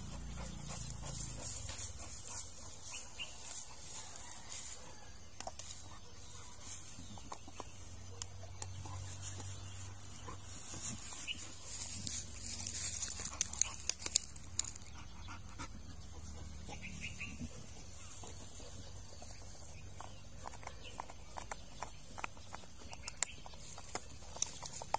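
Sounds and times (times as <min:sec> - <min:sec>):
dog chewing: 0:05.0 - 0:24.9
sharp crunching cracks: 0:10.7 - 0:15.0, 0:19.8 - 0:24.9.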